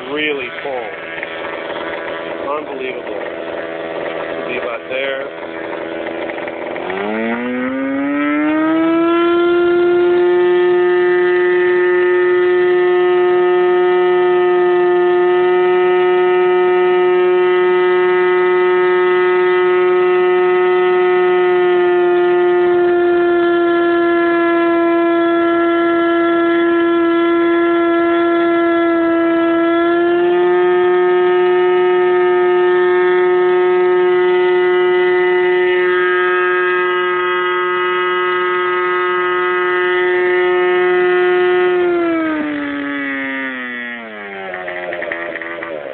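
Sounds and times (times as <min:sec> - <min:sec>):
model engine high-pitched scream: 0:00.0 - 0:45.9.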